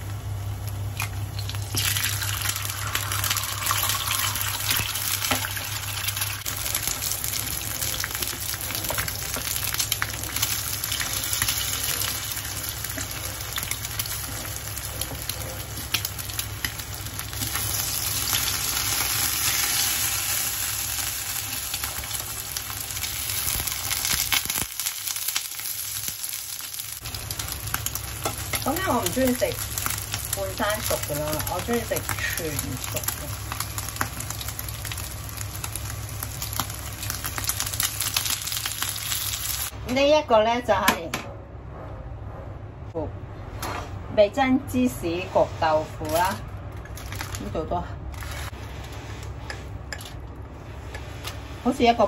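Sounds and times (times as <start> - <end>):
food sizzling in hot oil: 0.2 - 39.7.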